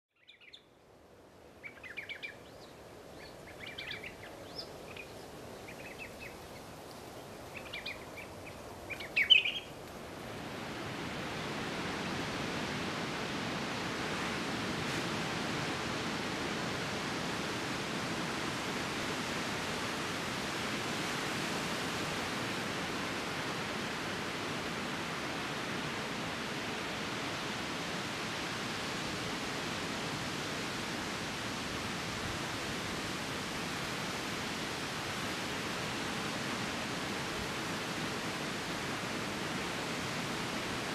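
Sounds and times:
faint hiss: 0.2s - 40.9s
birds chirping: 1.6s - 9.8s
ocean surf breaking on beach: 2.7s - 40.9s.

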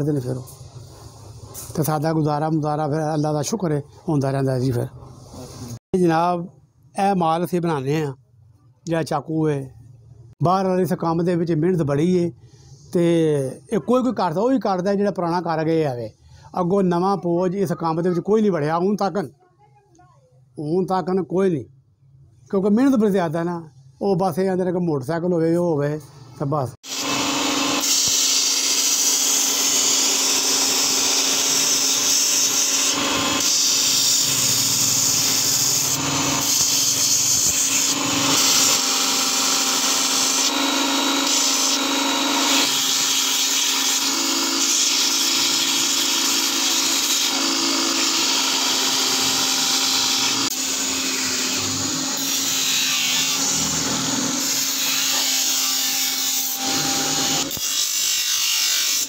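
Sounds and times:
grinder motor hum: 26.9s - 55.6s
blade hissing on grinding wheel: 26.9s - 59.0s.

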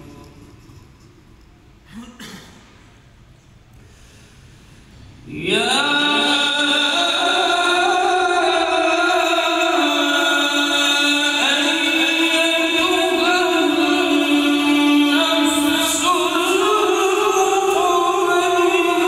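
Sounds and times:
man chanting melodically: 5.2s - 19.0s.

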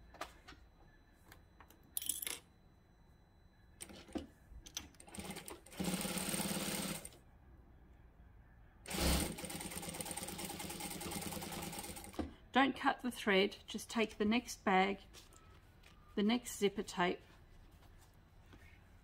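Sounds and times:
industrial sewing machine stitching: 5.1s - 7.2s, 8.9s - 12.2s.

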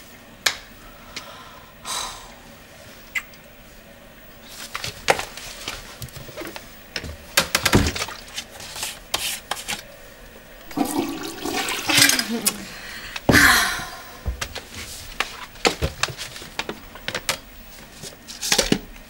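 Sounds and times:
toilet flush rushing: 10.6s - 13.0s.

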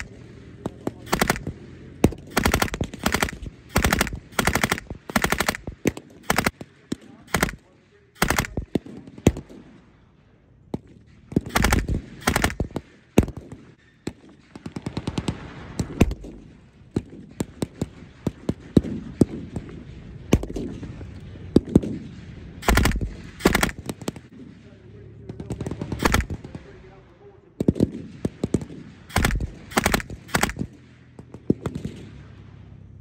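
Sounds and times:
single rifle shots: 0.0s - 10.0s, 10.7s - 32.9s
machine-gun bursts: 1.0s - 6.6s, 7.3s - 9.4s, 11.4s - 13.4s, 22.6s - 24.3s, 25.4s - 26.6s, 27.6s - 30.8s.

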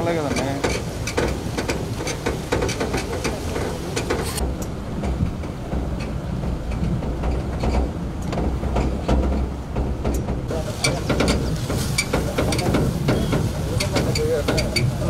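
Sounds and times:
vehicle rumbling through floodwater: 0.0s - 15.0s
clicks and knocks: 0.3s - 14.9s.

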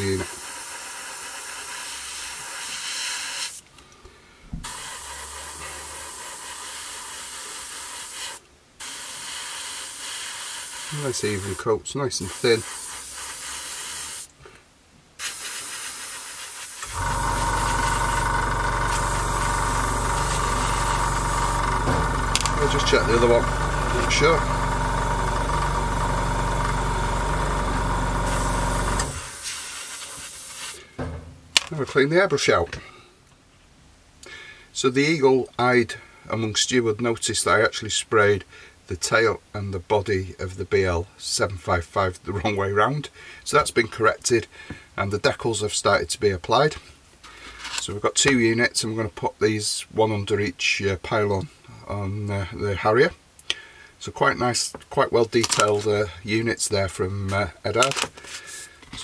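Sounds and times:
airbrush hissing: 0.0s - 3.6s, 4.6s - 14.3s, 15.2s - 24.4s, 27.4s - 30.9s, 58.3s - 58.8s.

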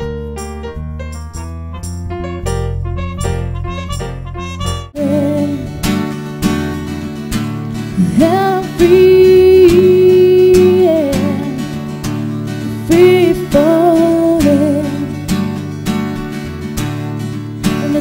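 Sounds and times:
strummed acoustic guitar: 2.9s - 18.0s
woman singing: 5.0s - 5.8s, 8.0s - 11.8s, 12.6s - 15.3s, 17.7s - 18.0s.

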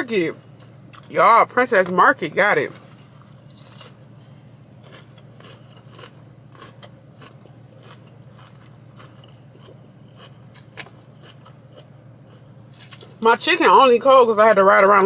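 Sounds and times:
steady low hum: 0.0s - 15.0s
crunchy chewing: 2.8s - 4.0s, 4.6s - 13.2s.

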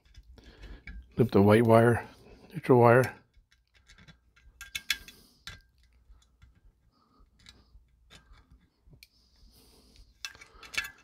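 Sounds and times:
wire clicking against metal jaws: 3.0s - 6.6s, 10.0s - 11.0s.

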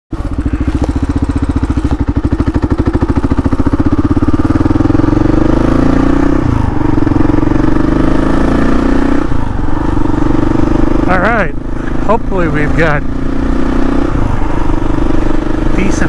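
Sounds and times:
motorcycle engine running: 0.1s - 16.0s.

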